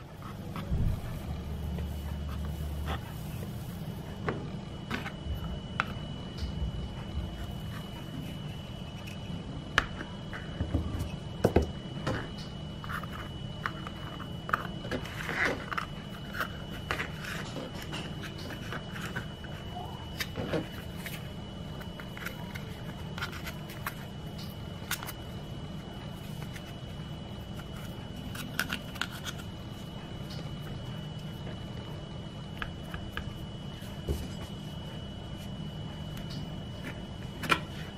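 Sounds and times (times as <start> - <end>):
hands handling dough: 0.0 - 11.2
faint high whine: 0.0 - 37.9
steady low hum: 0.0 - 37.9.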